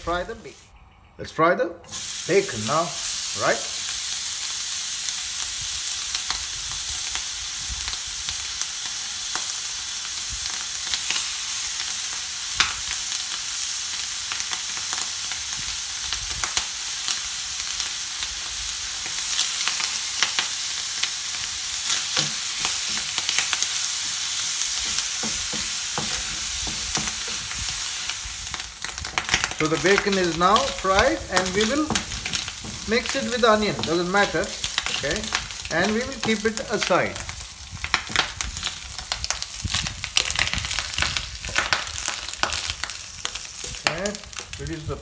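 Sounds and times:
bacon sizzling in a pan: 1.9 - 45.0
wooden spatula stirring: 21.9 - 37.3.

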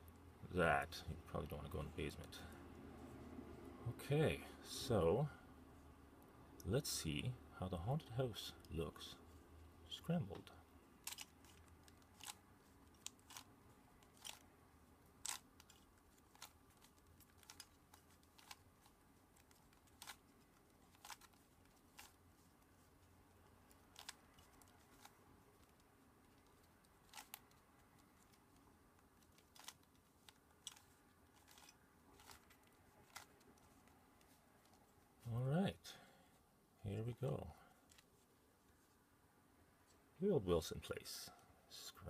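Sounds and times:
puzzle cube layers clicking: 11.1 - 14.4, 15.2 - 22.2, 29.2 - 33.7.

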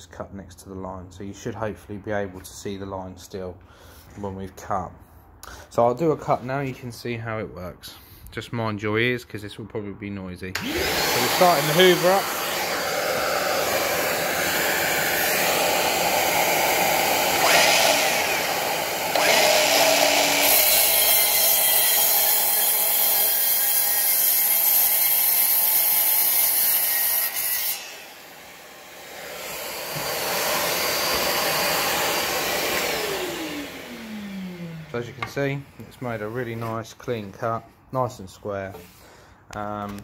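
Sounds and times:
vacuum running: 10.6 - 20.9, 27.7 - 35.4
mitre saw cutting wood: 10.6 - 35.4.

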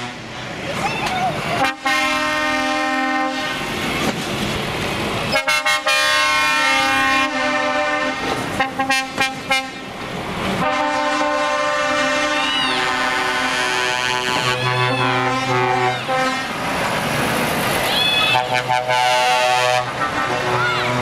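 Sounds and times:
truck air horns: 0.0 - 0.4, 1.6 - 3.7, 5.3 - 9.9, 10.6 - 16.7, 17.9 - 21.0
diesel truck engines pulling away: 0.0 - 21.0.

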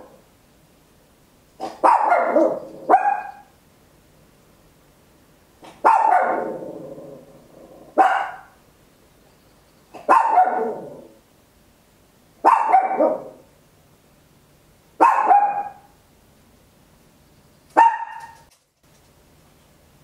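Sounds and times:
small dog barking: 1.6 - 3.6, 5.6 - 6.8, 7.9 - 8.6, 9.9 - 11.2, 12.4 - 13.5, 15.0 - 16.0, 17.7 - 18.5.

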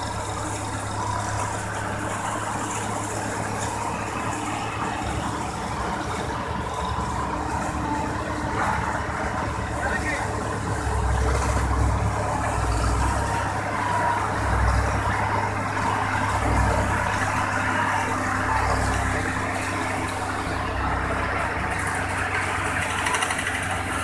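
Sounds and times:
combine harvester running: 0.0 - 24.0.

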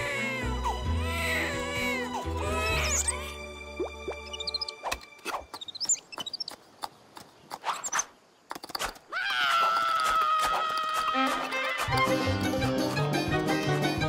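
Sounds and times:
long high-pitched cry: 0.0 - 3.3
squeaky chirps: 2.4 - 3.3, 4.1 - 6.6, 7.5 - 9.0.

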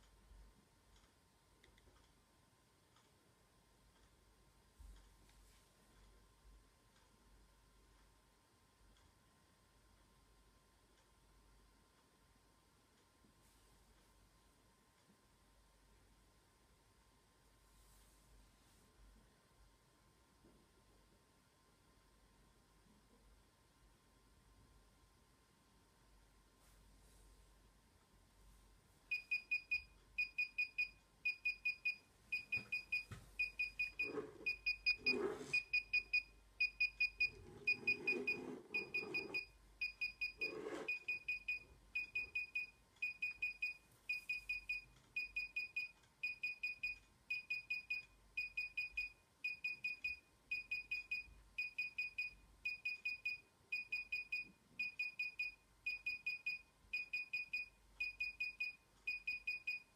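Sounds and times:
remote controller beeping: 29.1 - 59.8.

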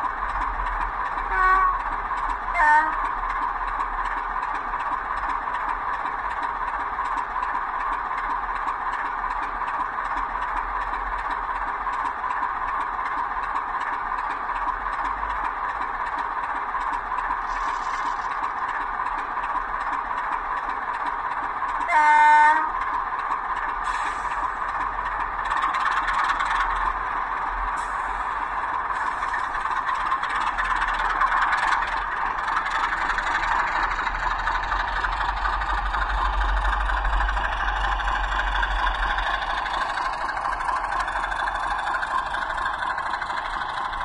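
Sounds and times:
diesel engine idling through small speaker: 0.0 - 44.0
locomotive horn blast: 1.3 - 1.8, 2.5 - 3.1, 21.9 - 22.8.

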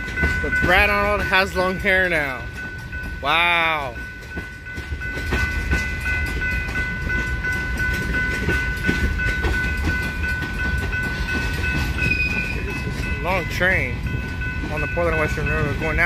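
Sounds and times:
crossing bell ringing: 0.0 - 16.0
freight train rumbling: 0.0 - 16.0.

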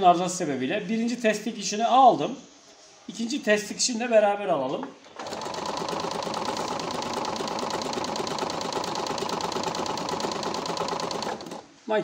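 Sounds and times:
sewing machine stitching: 5.1 - 11.7.

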